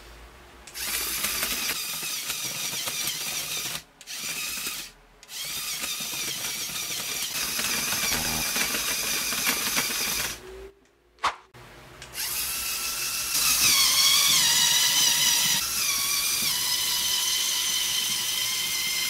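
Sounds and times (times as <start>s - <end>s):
electric motor whirring with gear chatter: 0.8s - 10.4s.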